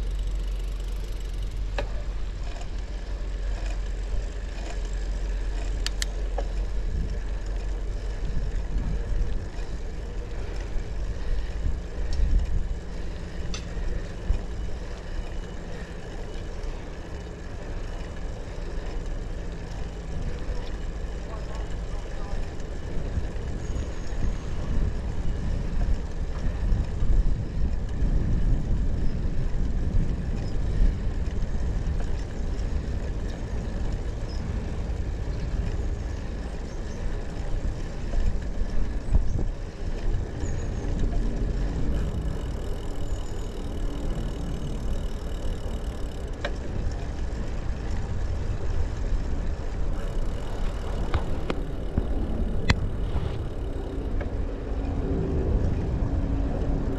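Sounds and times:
bicycle tyre noise: 0.0s - 56.9s
wind rumble on microphone: 0.0s - 56.9s.

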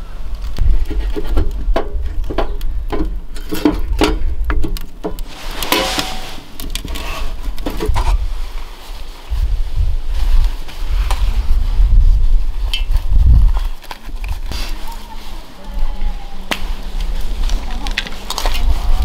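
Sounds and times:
wind on microphone: 0.0s - 19.0s
rushing rustle: 5.2s - 19.0s.

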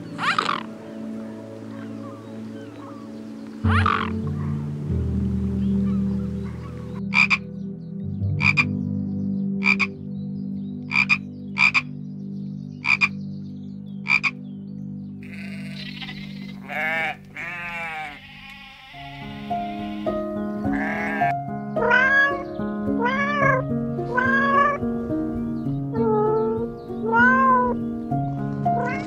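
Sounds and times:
frog croaking: 0.2s - 0.7s, 3.6s - 4.3s, 7.0s - 7.5s, 8.4s - 8.8s, 9.6s - 10.0s, 10.9s - 12.0s, 12.8s - 13.2s, 14.0s - 14.4s, 15.2s - 21.3s
sheep bleating: 15.2s - 21.4s.

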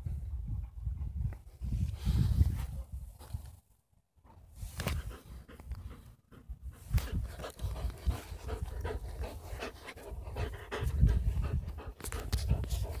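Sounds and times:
dog panting: 5.0s - 13.0s.

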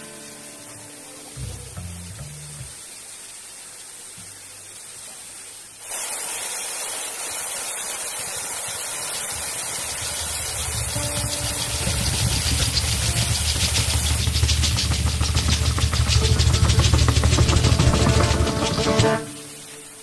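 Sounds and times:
stream water rushing over rock: 0.0s - 20.0s
low rumble: 10.6s - 19.2s.

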